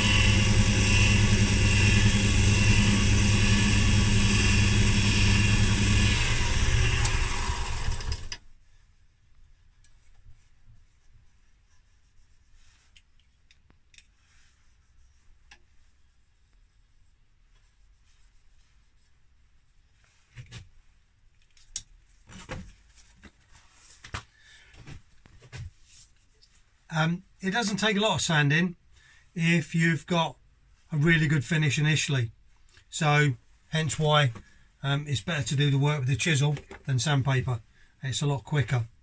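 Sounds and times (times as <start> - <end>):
wood lathe motor hum: 0.0 - 8.4.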